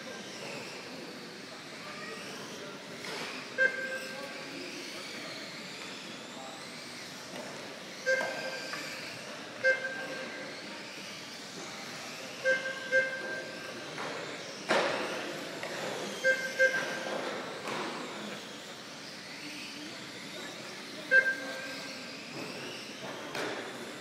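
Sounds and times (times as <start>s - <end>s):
electric rc cars whining: 0.0s - 24.0s
short electronic beeps: 3.6s - 4.2s, 8.0s - 8.7s, 9.6s - 10.3s, 12.4s - 13.6s, 16.2s - 17.1s, 21.0s - 21.9s.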